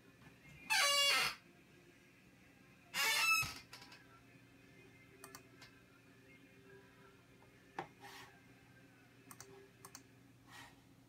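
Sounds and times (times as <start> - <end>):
low steady hum: 3.8 - 11.0.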